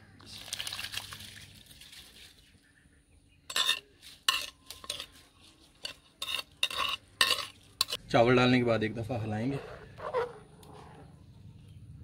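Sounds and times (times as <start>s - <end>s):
spoon scraping a pan: 3.5s - 8.1s, 9.1s - 11.1s.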